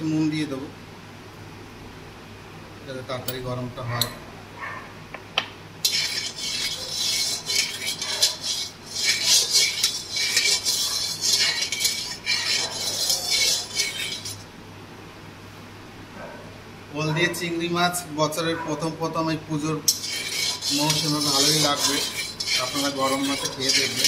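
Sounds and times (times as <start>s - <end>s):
spatula scraping a metal pan: 5.8s - 14.5s, 19.9s - 24.0s.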